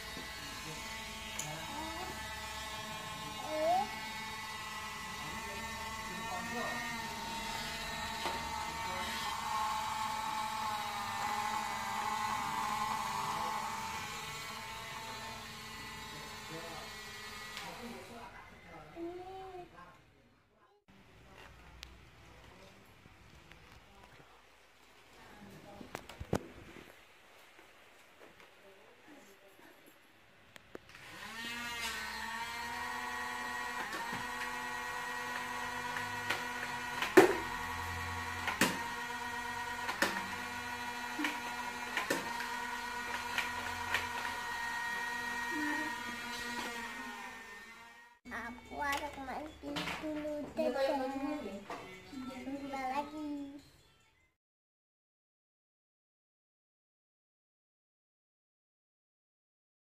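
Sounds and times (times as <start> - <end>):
toy flywheel motor whirring: 0.0 - 18.3, 30.9 - 49.1.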